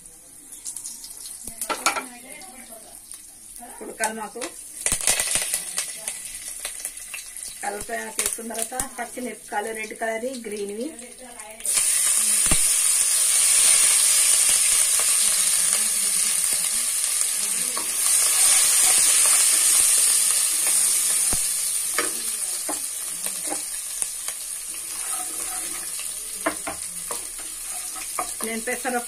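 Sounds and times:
chillies sizzling in hot oil: 0:00.0 - 0:29.0
wooden spatula knocking pan: 0:26.4 - 0:28.6.

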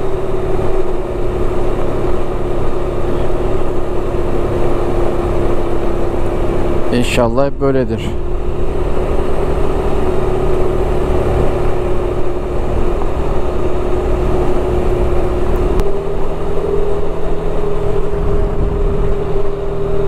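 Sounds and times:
road rumble: 0:00.0 - 0:20.0
scooter engine running: 0:00.0 - 0:20.0
wind on microphone: 0:08.2 - 0:20.0.

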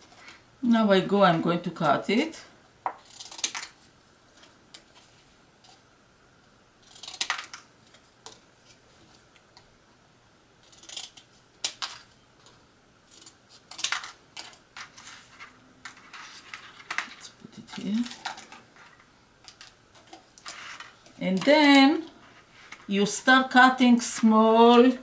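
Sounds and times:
scissors cutting plastic: 0:03.0 - 0:03.8, 0:06.8 - 0:08.4, 0:10.6 - 0:12.0, 0:13.1 - 0:14.6.

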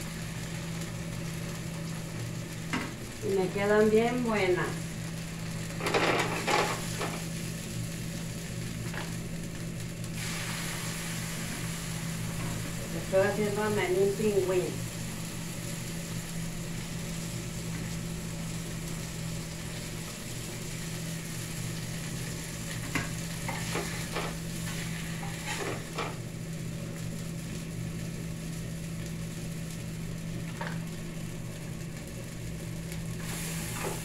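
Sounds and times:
food sizzling in oil: 0:00.0 - 0:34.0.

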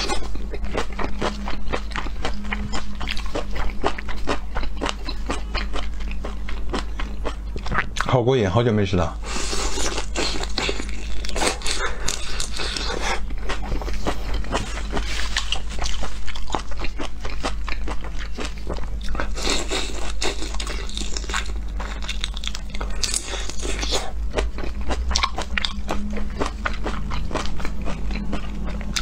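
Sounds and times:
chewing and crunching: 0:00.0 - 0:08.2, 0:09.3 - 0:29.0
low hum: 0:00.0 - 0:29.0.

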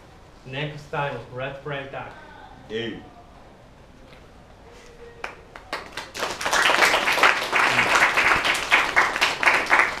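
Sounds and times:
audience applauding: 0:05.2 - 0:10.0.

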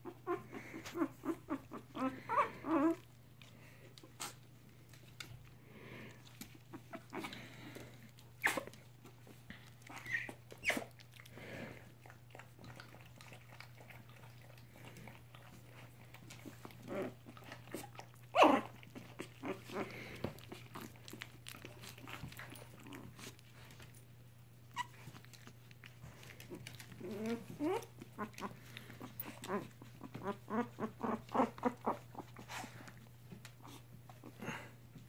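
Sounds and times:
puppy crying: 0:00.0 - 0:03.1, 0:09.9 - 0:10.9, 0:17.8 - 0:19.9, 0:24.7 - 0:25.1, 0:27.0 - 0:28.6
puppies squeaking and yipping: 0:08.4 - 0:08.8, 0:09.9 - 0:10.9, 0:24.7 - 0:25.2.

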